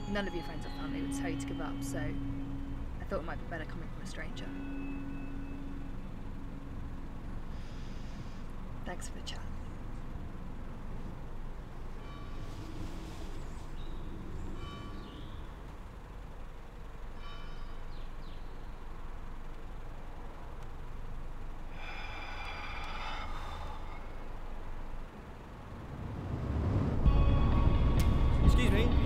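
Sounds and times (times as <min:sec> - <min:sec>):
sparse film score music: 0:00.0 - 0:08.0, 0:27.0 - 0:29.0
low steady rumble: 0:00.0 - 0:29.0.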